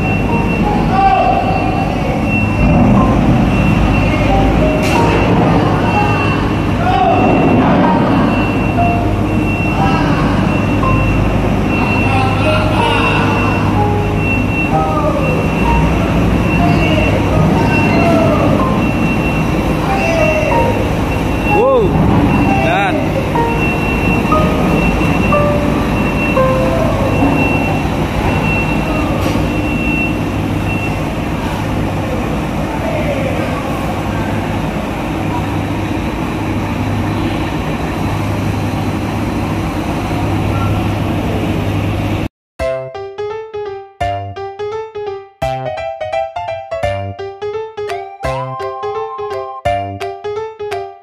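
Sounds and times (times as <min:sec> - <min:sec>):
high beep: 0:00.0 - 0:31.1
loud steady din: 0:00.0 - 0:33.4
truck diesel engine running: 0:00.0 - 0:42.3.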